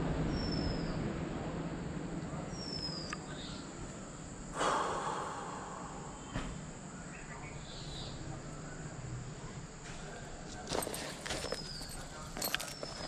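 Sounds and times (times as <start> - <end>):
background hum: 0.0 - 13.0.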